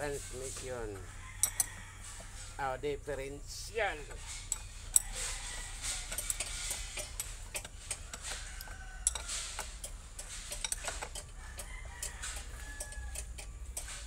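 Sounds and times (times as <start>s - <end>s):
ratchet wrench clicking: 1.4s - 1.8s, 4.1s - 14.0s.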